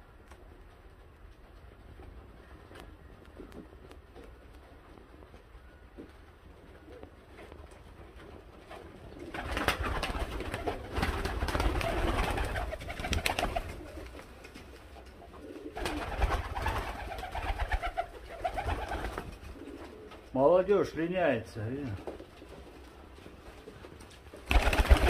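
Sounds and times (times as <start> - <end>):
pigeons cooing: 8.8 - 20.3.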